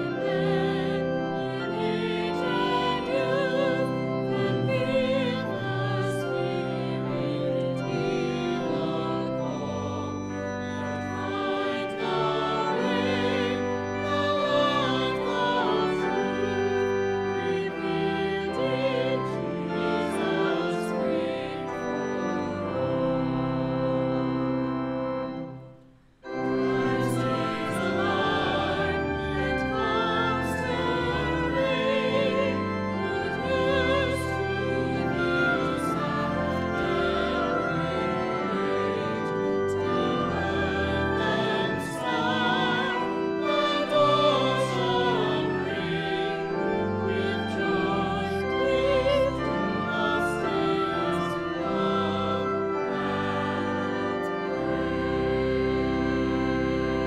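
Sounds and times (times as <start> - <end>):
vocal ensemble singing: 0.0 - 10.2, 11.2 - 16.4, 17.4 - 21.8, 26.7 - 55.7
organ: 0.0 - 57.0
woodwind: 25.4 - 57.0.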